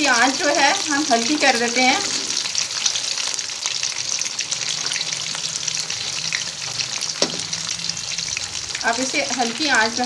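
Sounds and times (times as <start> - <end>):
chicken deep-frying in oil: 0.0 - 10.0
short knock: 7.2 - 7.5.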